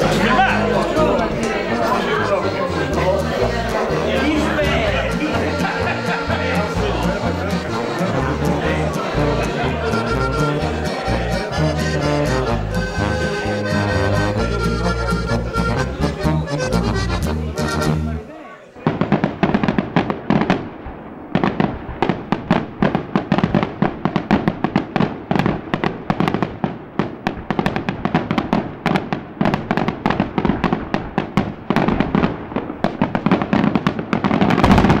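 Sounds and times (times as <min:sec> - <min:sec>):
fireworks bangs and crackles: 0:18.8 - 0:35.0.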